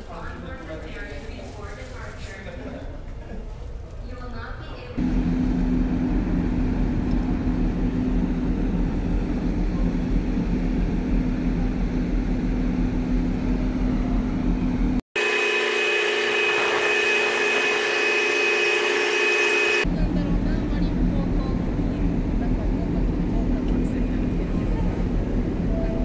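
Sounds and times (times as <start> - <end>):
ferry machinery hum: 5.0 - 26.0
high-pitched machine whine: 12.3 - 19.9.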